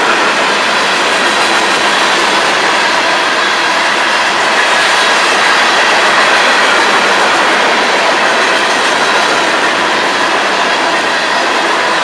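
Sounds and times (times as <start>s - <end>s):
train wheels on rails: 0.0s - 12.0s.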